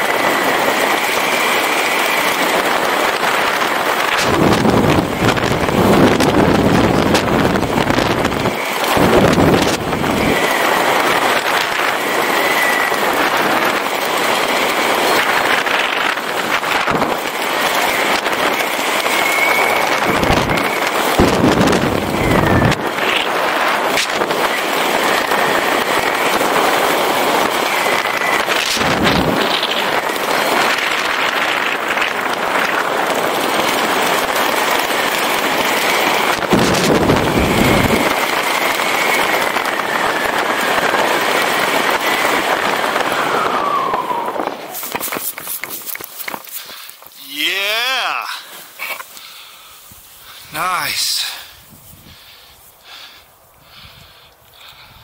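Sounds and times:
wind rushing over microphone: 0:00.0 - 0:48.3, 0:49.8 - 0:55.0
faint wavering whistle: 0:19.2 - 0:20.8.

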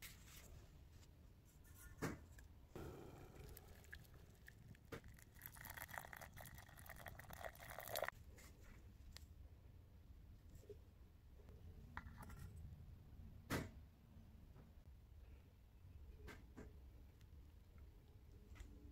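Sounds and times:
water pouring into saucepan: 0:03.1 - 0:08.1.

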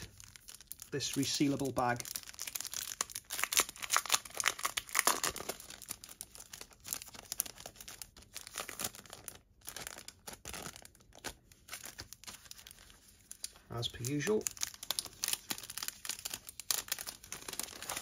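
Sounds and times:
plastic bag crinkling: 0:00.0 - 0:18.0.

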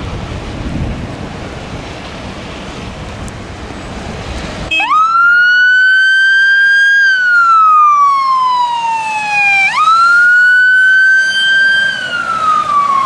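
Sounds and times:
wind on microphone: 0:00.0 - 0:04.7
fire engine siren wailing: 0:04.7 - 0:13.0.

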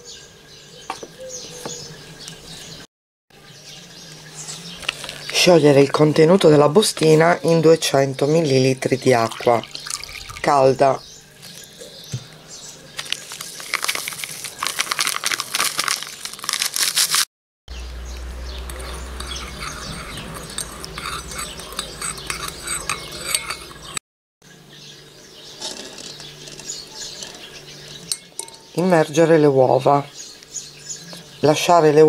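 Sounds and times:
paper sachet crinkling: 0:13.0 - 0:17.3
metal spoon clinking in bowl: 0:18.7 - 0:24.0, 0:28.1 - 0:28.7.

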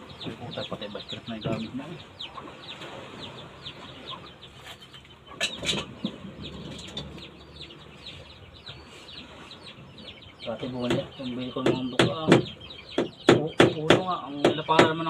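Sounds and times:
small birds chirping: 0:00.0 - 0:15.0
mallet knocking on wood: 0:10.8 - 0:15.0.

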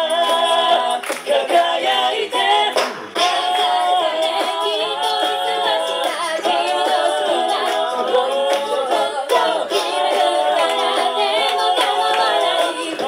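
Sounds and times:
group singing backing vocals: 0:00.0 - 0:13.0
woman singing lead: 0:03.2 - 0:13.0.

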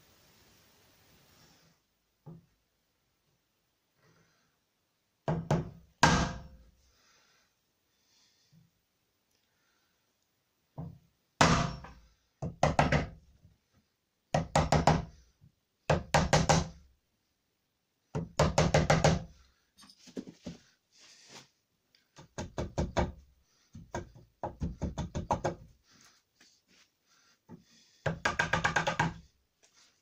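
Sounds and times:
chisel paring wood: 0:28.1 - 0:29.3.

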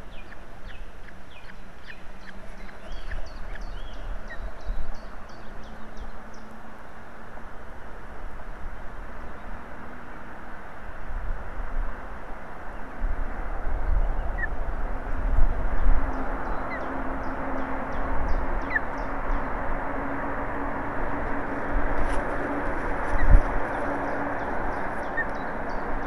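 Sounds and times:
wind buffeting microphone: 0:13.0 - 0:26.0.

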